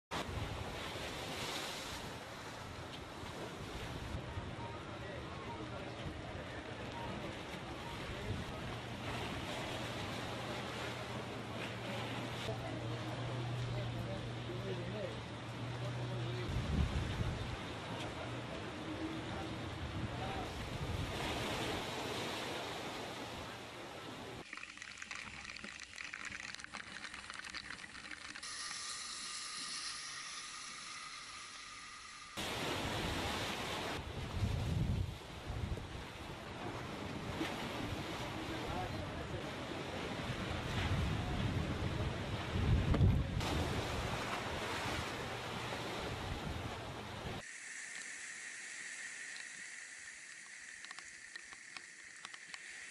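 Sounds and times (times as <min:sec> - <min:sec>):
small waves washing onto beach: 0:00.1 - 0:04.2, 0:20.0 - 0:52.9
rough sea: 0:00.1 - 0:52.9
strong wind: 0:16.5 - 0:17.7, 0:32.4 - 0:36.3, 0:40.2 - 0:44.1
breaking surf: 0:25.9 - 0:35.0, 0:42.6 - 0:52.9
faint ticks: 0:49.0 - 0:52.9.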